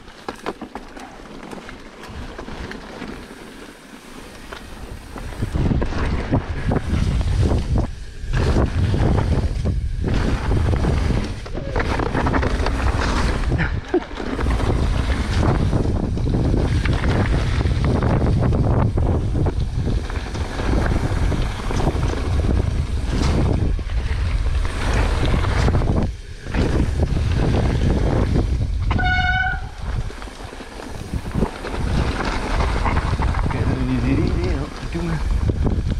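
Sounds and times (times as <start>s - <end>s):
bike rattling over rough ground: 0.0s - 35.9s
tyres crunching: 0.0s - 35.9s
wind buffeting microphone: 4.7s - 35.9s.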